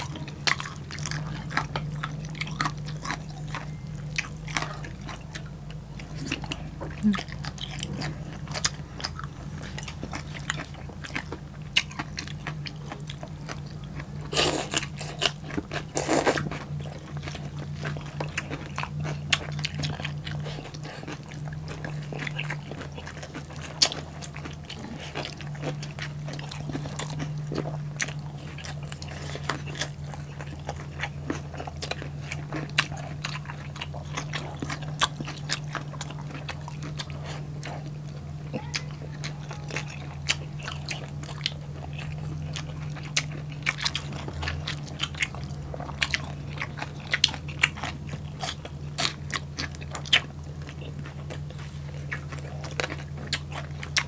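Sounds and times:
chewing and crunching food: 0.0s - 54.0s
low hum: 0.0s - 54.0s.

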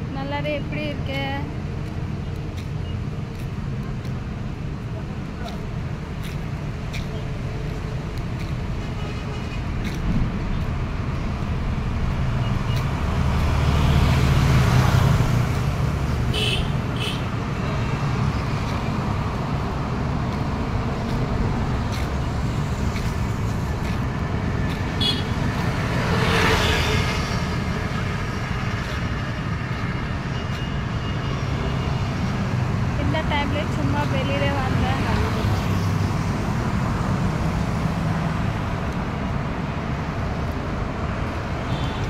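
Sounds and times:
traffic rumble: 0.0s - 42.0s
vehicle passing loudly: 11.6s - 17.0s.

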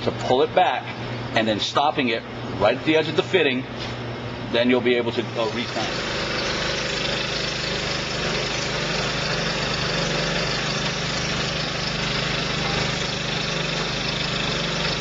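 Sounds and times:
texture sprayer pump humming: 4.5s - 15.0s.

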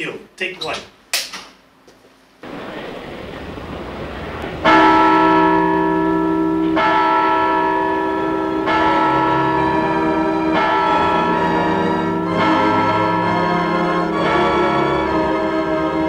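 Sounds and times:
wash of noise: 2.4s - 6.6s
clock bell striking: 4.5s - 16.0s.

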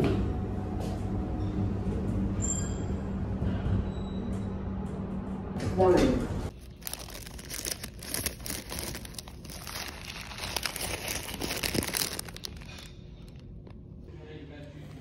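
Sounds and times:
paper bag crinkling: 6.5s - 13.8s.

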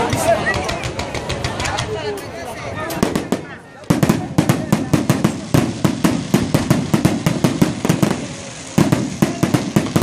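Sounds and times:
fireworks bangs: 2.8s - 10.0s.

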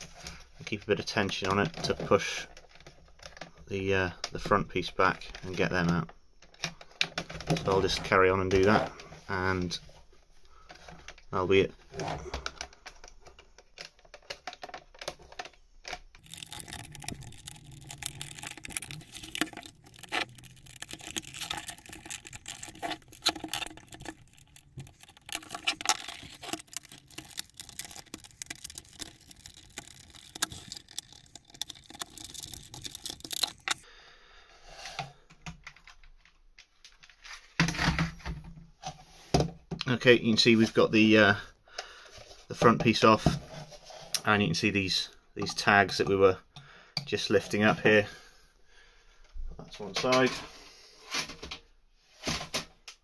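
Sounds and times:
plastic clicks and scrapes: 11.9s - 33.8s.

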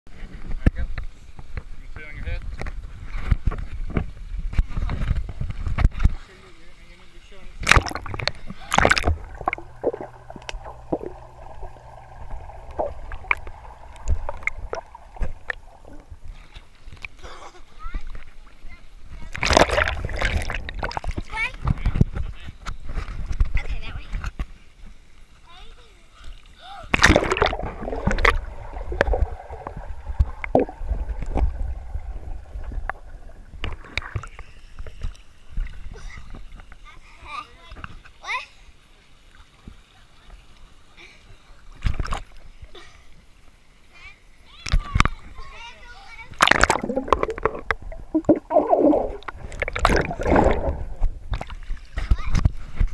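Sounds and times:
low underwater hum: 0.2s - 52.9s
camera splashing into water: 7.6s - 11.7s, 19.3s - 21.2s, 26.9s - 34.3s, 46.4s - 52.4s
clicks and pops: 7.6s - 16.1s, 26.9s - 34.4s, 46.4s - 51.6s.

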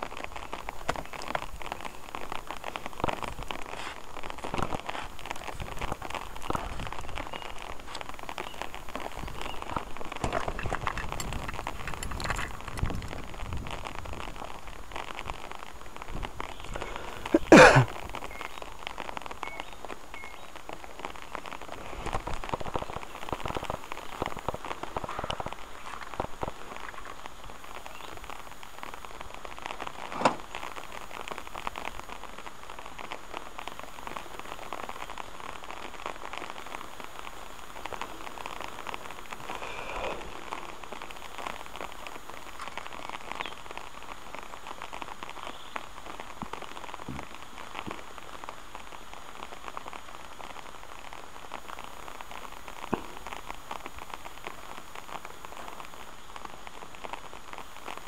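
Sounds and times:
rain pattering: 0.0s - 58.0s.

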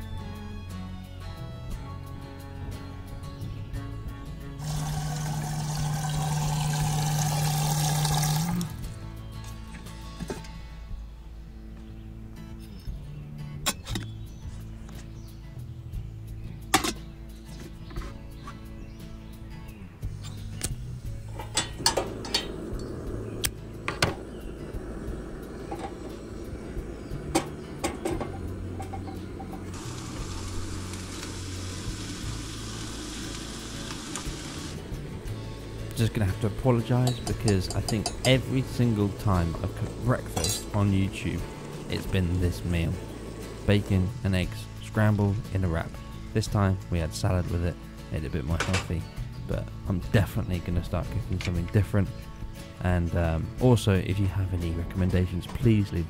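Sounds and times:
soft background music: 0.0s - 56.0s
water running into a kettle: 4.6s - 8.9s, 27.3s - 44.2s
kettle set down on metal: 16.7s - 17.0s, 21.3s - 22.5s, 23.9s - 24.2s, 25.6s - 26.2s, 27.3s - 29.7s, 36.9s - 38.4s, 40.3s - 40.8s.

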